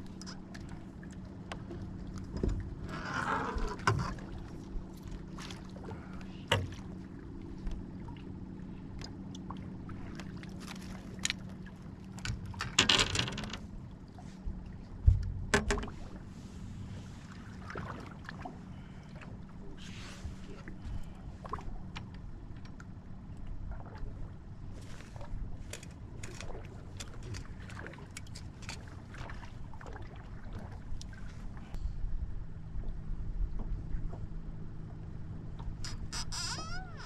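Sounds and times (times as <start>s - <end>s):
trolling motor humming: 0.0s - 37.0s
knocks and clatter on boat deck: 1.4s - 5.6s, 6.2s - 6.9s, 12.0s - 13.8s, 14.9s - 16.2s.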